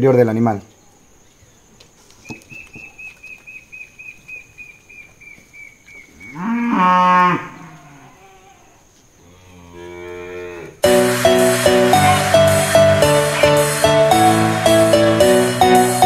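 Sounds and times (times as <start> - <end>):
faint high chirping: 0.6 - 6.5
farm animal calling: 2.2 - 10.7.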